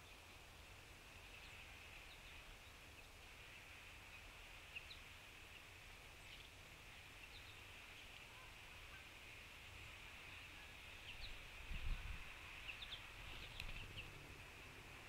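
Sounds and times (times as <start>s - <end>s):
low hiss: 0.0s - 15.0s
faint bird chirps: 6.2s - 14.2s.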